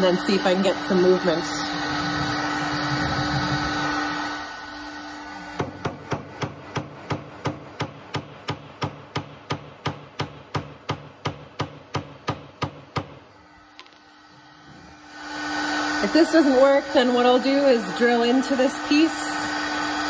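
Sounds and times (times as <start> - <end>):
heat gun humming: 0.0 - 20.0
hammer tapping wooden block: 5.6 - 13.2.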